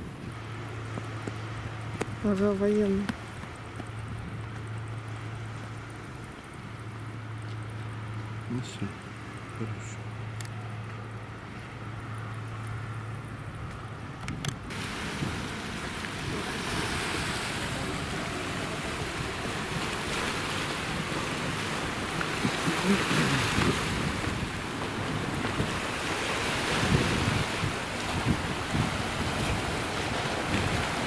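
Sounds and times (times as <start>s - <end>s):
wind buffeting microphone: 13.4s - 31.0s
surf washing onto shore: 14.7s - 31.0s.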